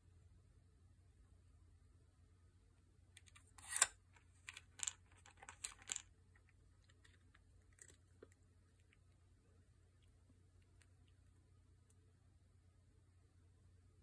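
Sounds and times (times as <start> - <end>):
plastic puzzle pieces clicking: 3.2 - 6.1.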